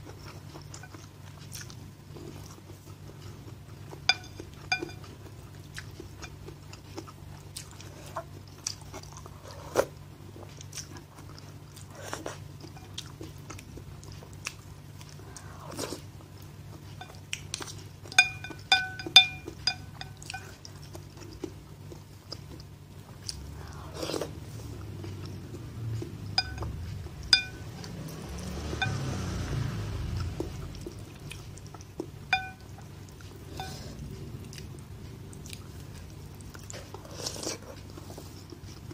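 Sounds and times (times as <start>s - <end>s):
chewing: 0.0s - 38.9s
utensils clinking on ceramic bowl: 4.0s - 5.2s, 18.0s - 20.6s, 26.3s - 29.2s, 32.3s - 32.8s.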